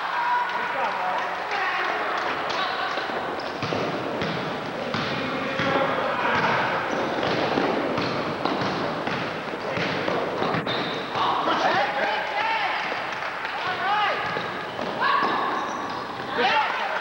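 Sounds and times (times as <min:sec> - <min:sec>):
players running on gym floor: 0:00.1 - 0:17.0
basketball dribbling: 0:03.0 - 0:11.3, 0:14.1 - 0:16.5.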